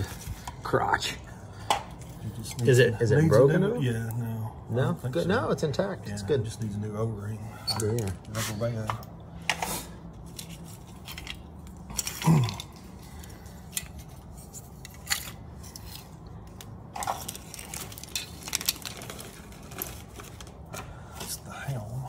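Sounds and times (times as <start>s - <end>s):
plastic toy parts clattering on concrete: 9.5s - 20.9s.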